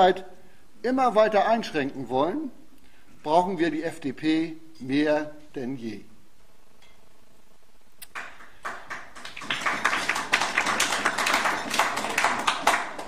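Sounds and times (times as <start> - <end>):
audience applauding: 8.1 - 13.0.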